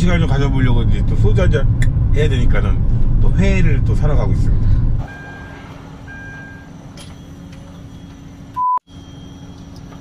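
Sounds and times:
loud electronic beep: 0:05.0 - 0:09.7
faint high beeps: 0:05.1 - 0:09.8.

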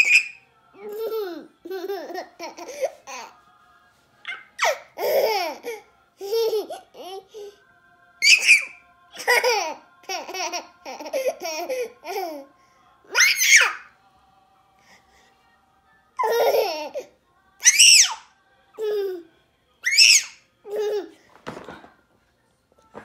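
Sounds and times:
toddler squealing: 0:00.0 - 0:00.4, 0:08.2 - 0:08.8, 0:13.2 - 0:13.8, 0:17.6 - 0:18.2, 0:19.8 - 0:20.4
toddler laughing: 0:04.3 - 0:07.3, 0:20.0 - 0:21.2.

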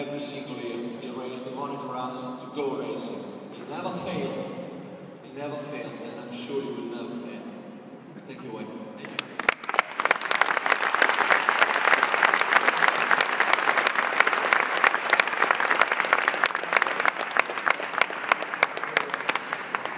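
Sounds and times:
audience applauding: 0:09.0 - 0:19.9.

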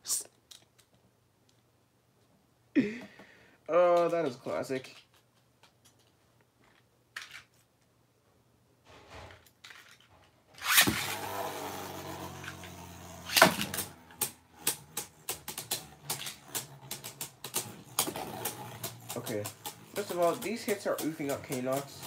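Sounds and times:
spinning top landing clack: 0:10.6 - 0:22.0
spinning top whirring: 0:10.6 - 0:22.0
spinning tops clashing clicks: 0:12.1 - 0:22.0.

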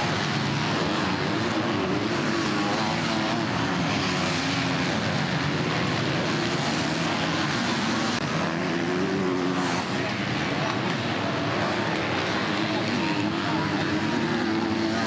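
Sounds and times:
motocross bike engines revving: 0:00.0 - 0:15.0.

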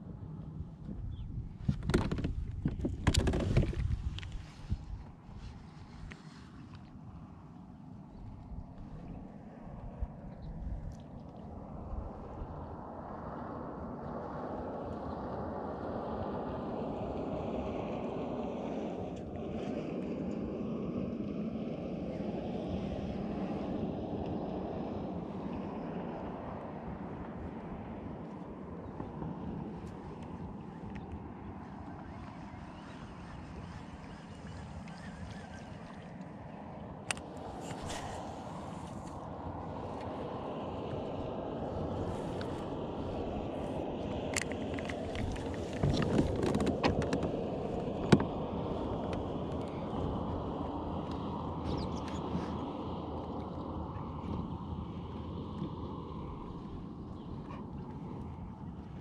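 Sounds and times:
wind buffeting microphone: 0:00.0 - 0:06.5, 0:08.1 - 0:59.0
water noise: 0:00.0 - 0:59.0.

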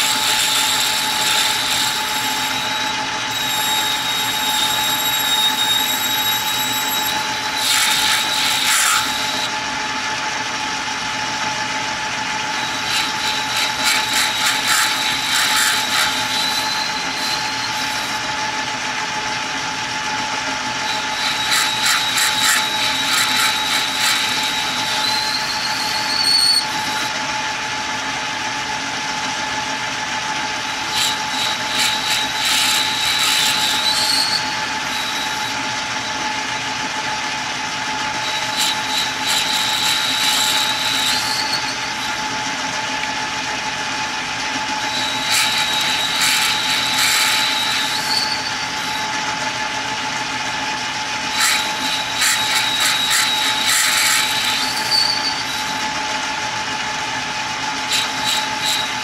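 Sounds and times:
tool bit rasping on metal: 0:00.0 - 0:09.6, 0:12.5 - 0:18.5, 0:20.8 - 0:27.1, 0:30.6 - 0:36.2, 0:38.1 - 0:42.4, 0:44.6 - 0:49.3, 0:51.3 - 0:56.0, 0:57.9 - 0:59.0
metal lathe humming and whining: 0:00.0 - 0:59.0.

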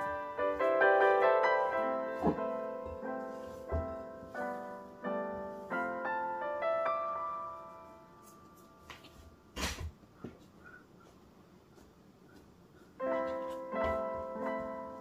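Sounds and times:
piano music: 0:00.0 - 0:09.6, 0:13.0 - 0:15.0.

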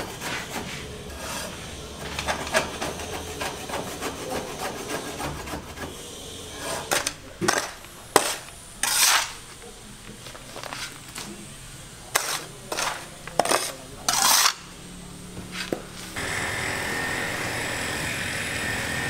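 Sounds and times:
rasp scraping concrete block: 0:00.0 - 0:09.4, 0:12.1 - 0:14.7.

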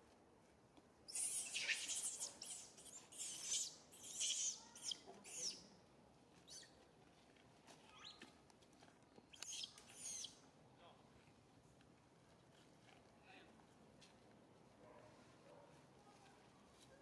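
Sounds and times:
shrill high-pitched chirping calls: 0:01.1 - 0:05.6, 0:06.5 - 0:06.7, 0:09.3 - 0:10.4.

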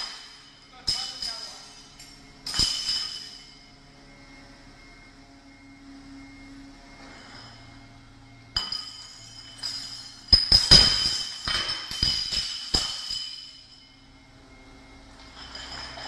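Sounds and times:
glass bottles clinking and smashing: 0:00.0 - 0:03.6, 0:08.6 - 0:13.9, 0:15.2 - 0:16.0.

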